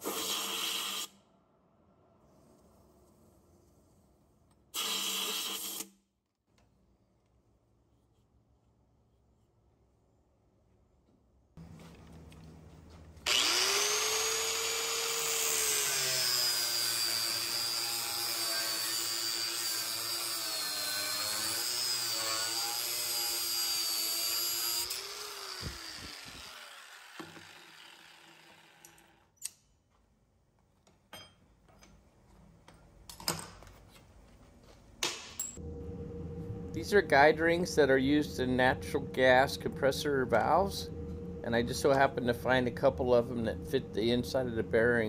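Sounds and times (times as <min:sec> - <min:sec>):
angle grinder cutting steel: 0:13.3 - 0:29.2.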